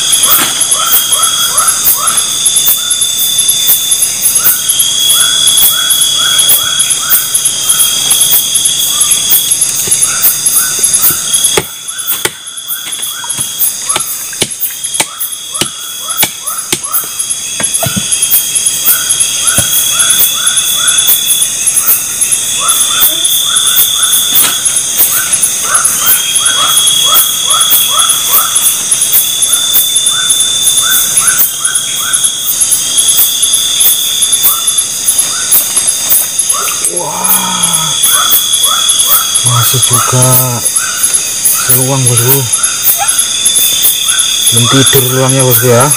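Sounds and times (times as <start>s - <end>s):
crickets and insects trilling: 0.0s - 45.9s
short insect chirps: 0.0s - 45.9s
sharp clicks and knocks: 11.3s - 18.8s.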